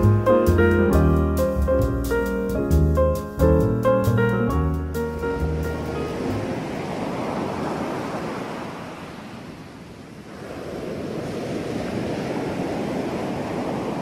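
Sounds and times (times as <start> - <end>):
ocean waves washing in: 4.7 - 14.0.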